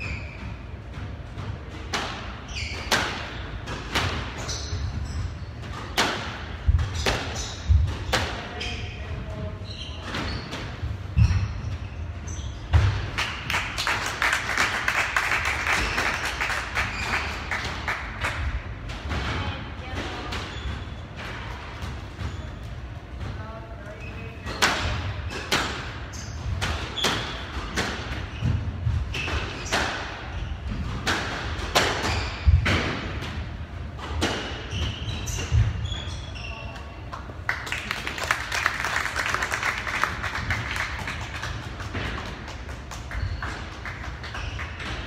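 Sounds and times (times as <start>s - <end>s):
shoe squeaks on wooden floor: 0.0s - 0.8s, 2.4s - 3.2s, 4.3s - 5.6s, 8.4s - 12.8s, 22.2s - 27.5s, 32.0s - 32.6s, 34.6s - 37.0s.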